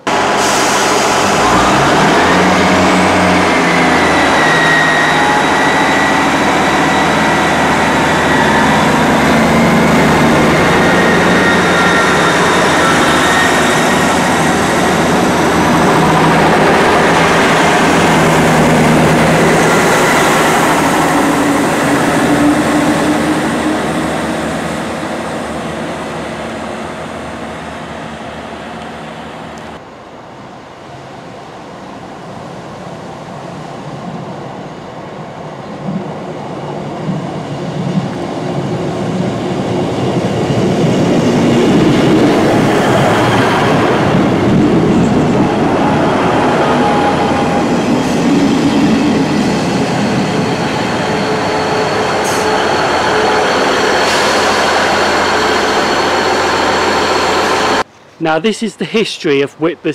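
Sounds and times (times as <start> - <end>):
diesel train engine rumble: 0.0 - 59.9
transmission whine: 1.0 - 29.8, 40.2 - 58.0.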